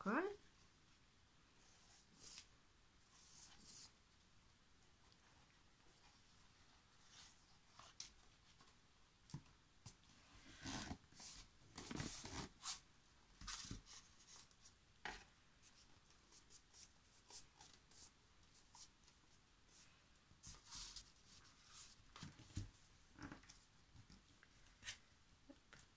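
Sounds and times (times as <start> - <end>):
paper rustling and rubbing: 15.6 - 22.7.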